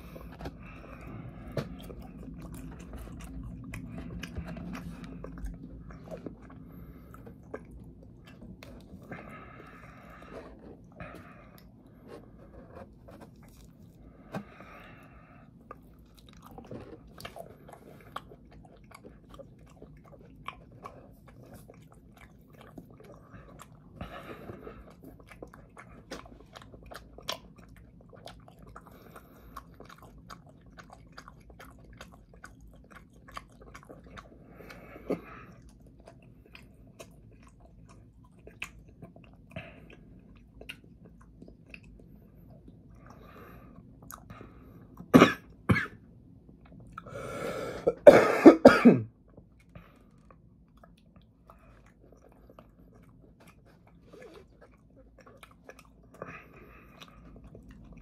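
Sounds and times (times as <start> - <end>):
chewing fries: 0.0 - 47.5, 49.1 - 58.0
person coughing: 45.1 - 46.0, 47.7 - 49.1
throat clearing: 45.1 - 46.0, 47.8 - 49.1.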